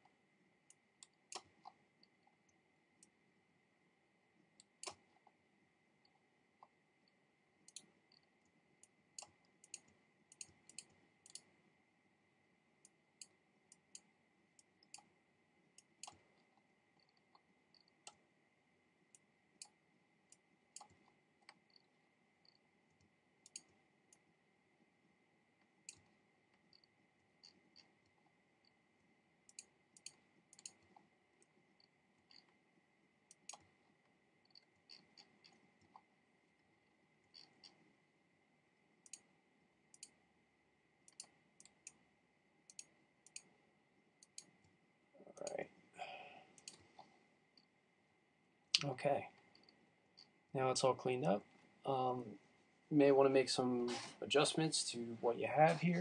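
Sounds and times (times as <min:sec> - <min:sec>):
computer mouse clicks: 0:00.0 - 0:03.2, 0:04.6 - 0:05.4, 0:06.0 - 0:11.6, 0:12.8 - 0:18.2, 0:19.1 - 0:24.3, 0:25.6 - 0:28.8, 0:29.5 - 0:32.6, 0:33.3 - 0:36.1, 0:37.2 - 0:37.9, 0:39.0 - 0:39.3, 0:39.9 - 0:40.2, 0:41.0 - 0:42.0, 0:42.7 - 0:43.6, 0:44.2 - 0:44.8, 0:46.5 - 0:47.7
faint high whine: 0:00.0 - 0:56.0.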